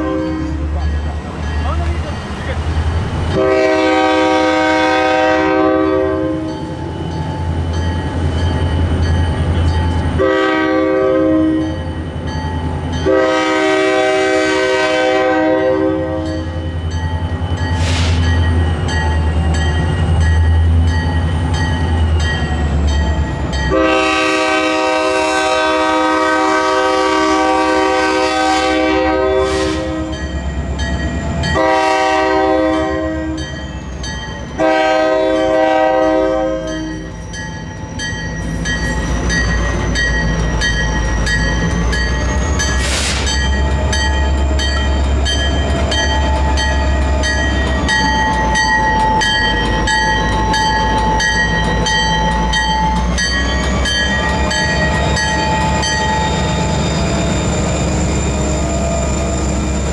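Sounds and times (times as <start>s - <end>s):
locomotive air horn blasts: 0.0s - 0.6s, 3.3s - 6.5s, 10.2s - 11.7s, 13.0s - 16.5s, 23.7s - 30.2s, 31.6s - 33.4s, 34.6s - 37.1s.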